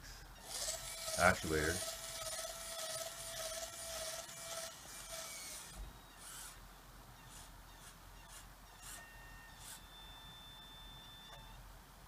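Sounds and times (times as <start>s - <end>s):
scratchy rasps of screw drive: 0.4s - 6.6s, 7.2s - 9.8s
small electric motor whine: 0.4s - 6.6s, 7.2s - 11.6s.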